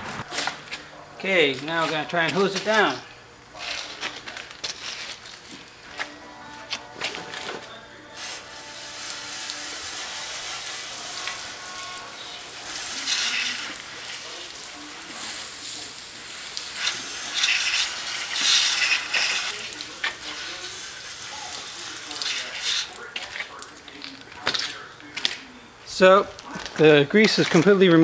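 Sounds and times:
hose spraying water: 0:08.2 - 0:23.6.

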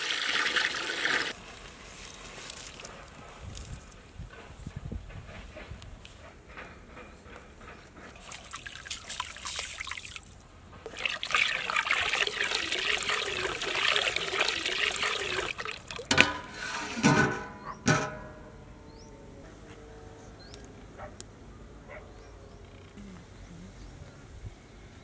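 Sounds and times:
water pouring into metal pot: 0:00.0 - 0:01.4, 0:10.9 - 0:16.1
ringing metal clanks: 0:16.1 - 0:20.5.

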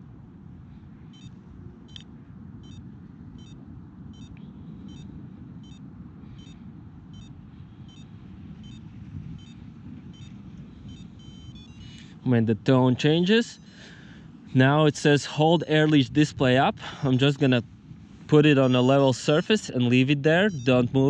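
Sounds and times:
wind rumble on microphone: 0:00.0 - 0:21.0
short high beeps: 0:10.9 - 0:12.0, 0:20.4 - 0:21.0.

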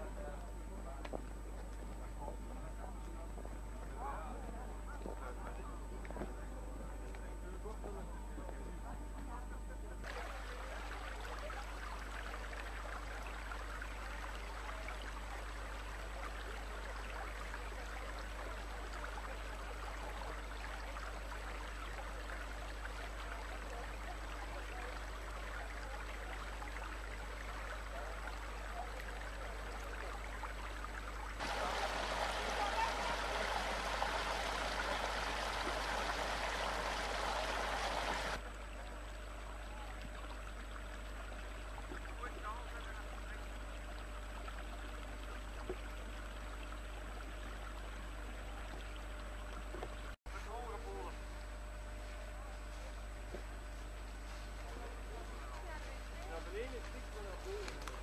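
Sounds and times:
low steady hum: 0:00.0 - 0:58.0
stream rushing: 0:31.4 - 0:38.4.

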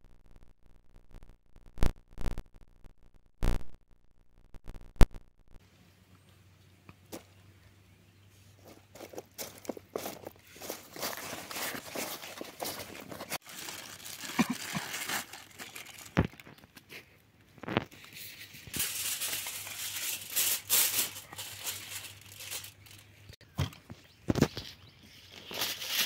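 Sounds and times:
aluminium foil crinkling: 0:09.0 - 0:17.0, 0:17.6 - 0:23.4, 0:25.3 - 0:26.0.

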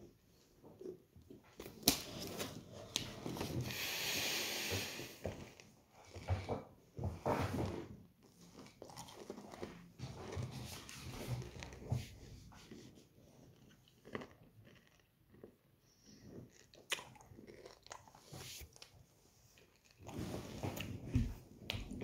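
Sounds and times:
candy being chewed and crunched: 0:08.2 - 0:20.9
wet mouth sounds: 0:13.5 - 0:18.9.

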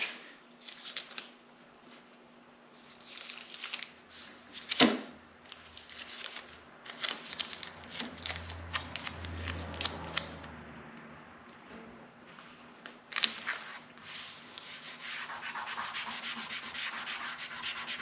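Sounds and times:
paper crackling rustle: 0:00.0 - 0:02.2, 0:02.8 - 0:10.4, 0:12.4 - 0:15.9
tape peeling and tearing: 0:05.5 - 0:10.5.

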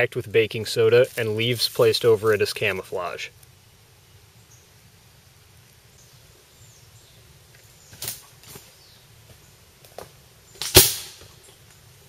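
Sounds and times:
sharp pop: 0:10.6 - 0:11.3.

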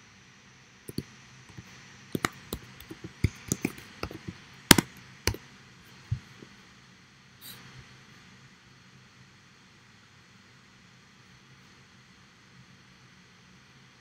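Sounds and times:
typing on computer keyboard: 0:00.9 - 0:01.6, 0:02.2 - 0:05.4.

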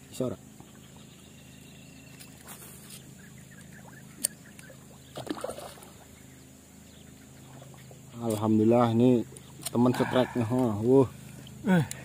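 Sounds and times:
steady low hum: 0:00.0 - 0:12.0
fish splashing at water surface: 0:04.9 - 0:06.1.

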